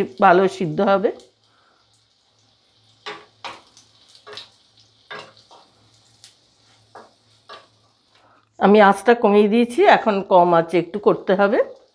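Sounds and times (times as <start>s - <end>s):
fritters sizzling in oil: 0.0s - 11.9s
metal spatula scraping pan: 5.1s - 5.7s.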